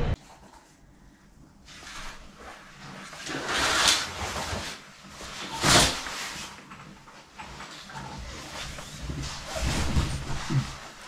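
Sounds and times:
curtains swishing along rail: 1.7s - 6.6s, 7.7s - 11.0s.

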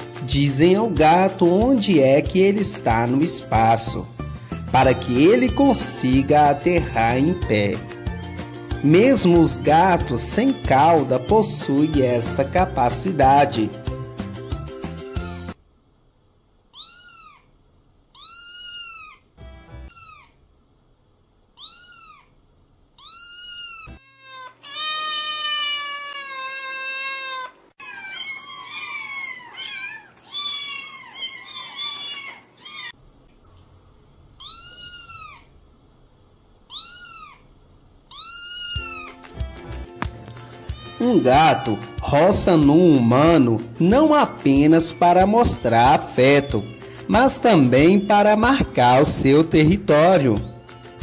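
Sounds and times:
cat meowing: 16.7s - 17.5s, 18.1s - 20.4s, 21.6s - 22.4s, 23.0s - 33.0s, 34.4s - 35.6s, 36.7s - 37.5s, 38.1s - 39.2s, 40.5s - 42.6s, 46.1s - 49.2s, 50.4s - 51.0s.

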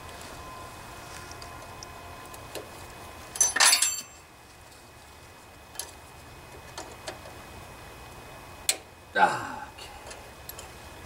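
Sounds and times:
steel hand tools clinking: 3.4s - 4.2s.

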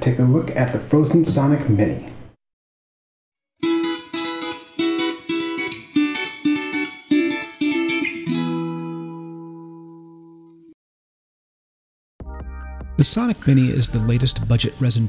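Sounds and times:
guitar chords: 3.6s - 10.8s.

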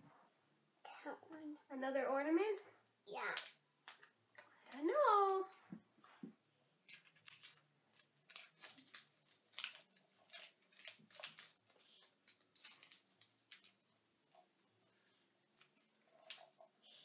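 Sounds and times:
plastic wrapper crinkling and tearing: 6.9s - 14.6s, 15.6s - 16.7s.

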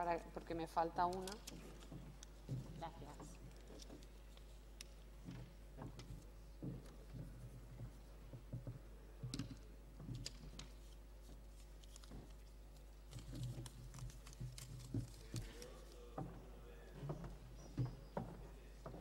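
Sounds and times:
faint low murmuring: 15.0s - 19.0s.

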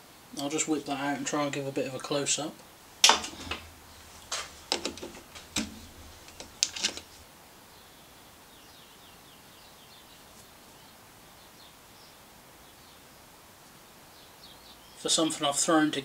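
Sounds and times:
metallic clicks and knocks: 3.0s - 7.2s
faint bird chirps: 14.0s - 15.1s.

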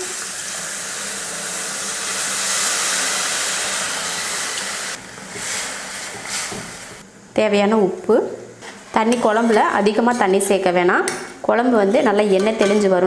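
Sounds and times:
sizzling hiss in hot oil: 0.0s - 7.0s.

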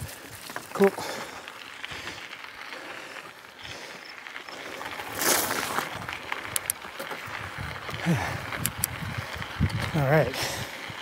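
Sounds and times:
bike tyres rolling on dirt trail: 0.0s - 11.0s
sharp ticks: 6.4s - 6.8s, 8.5s - 9.9s.

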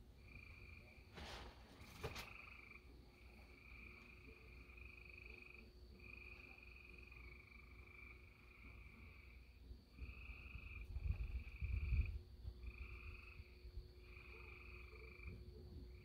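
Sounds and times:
short rustle: 1.1s - 2.4s
frog chorus trilling: 2.2s - 9.4s, 10.0s - 16.0s.

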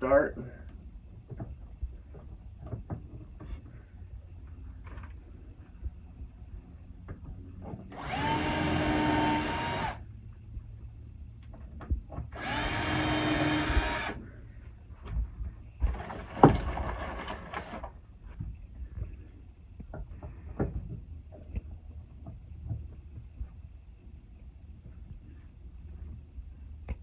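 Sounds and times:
cordless drill whining: 7.9s - 10.0s, 12.3s - 14.2s.

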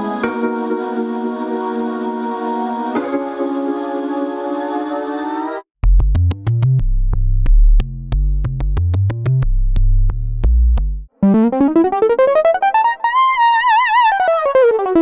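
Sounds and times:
clicky synth bass notes: 5.8s - 13.3s
synth chord: 11.2s - 13.7s.

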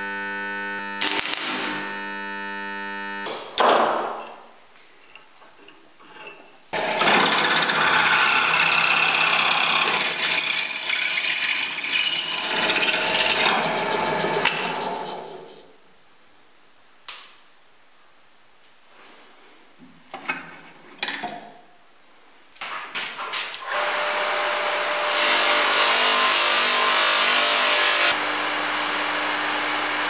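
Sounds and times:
welding arc buzzing: 0.0s - 3.5s
drill press cutting steel: 6.8s - 15.4s.

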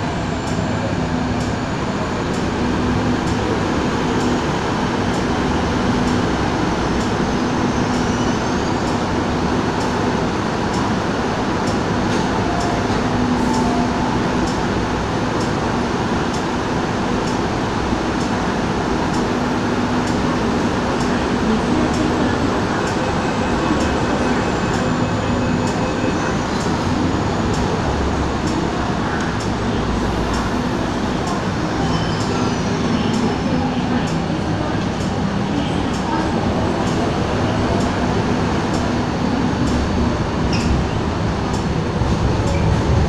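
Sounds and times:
train and station hum: 0.0s - 43.0s
low tone: 12.0s - 15.8s.

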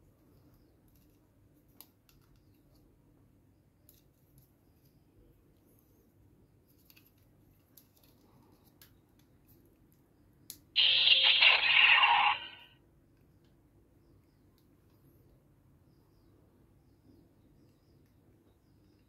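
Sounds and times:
toy electronic sound effect: 10.8s - 12.7s.

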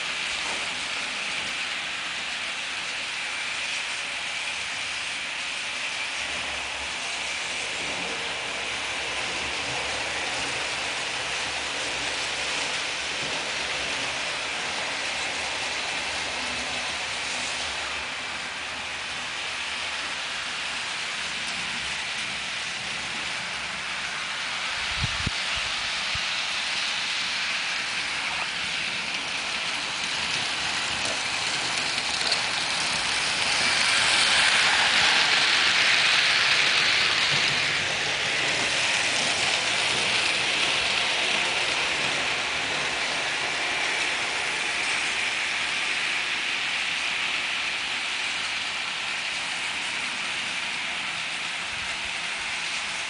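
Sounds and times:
model train rattling on track: 0.0s - 53.0s.

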